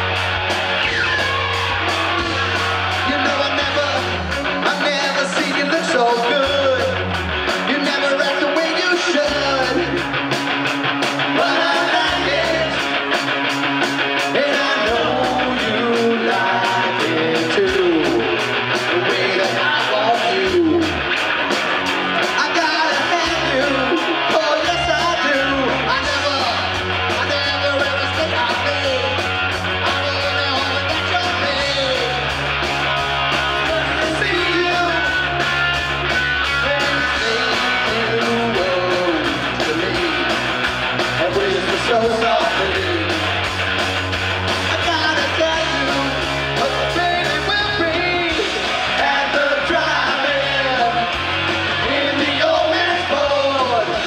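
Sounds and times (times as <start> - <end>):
bass guitar: 0.0 - 54.0
electric guitar: 0.0 - 54.0
steady drum beat: 0.0 - 54.0
man singing: 3.0 - 7.0, 7.6 - 10.0, 11.3 - 12.9, 14.2 - 21.0, 22.2 - 29.2, 29.8 - 32.3, 33.5 - 35.4, 36.5 - 40.4, 41.2 - 43.2, 44.7 - 54.0.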